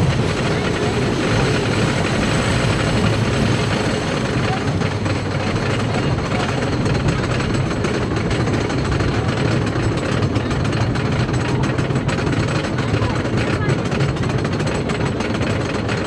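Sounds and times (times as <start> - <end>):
lift chain ratchet clatter: 0.0 - 16.0.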